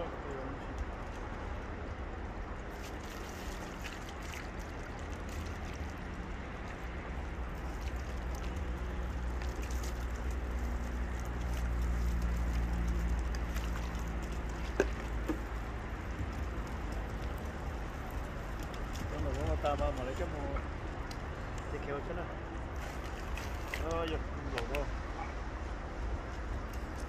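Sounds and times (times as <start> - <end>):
water splashing over fish: 2.6 - 20.4, 22.6 - 24.1.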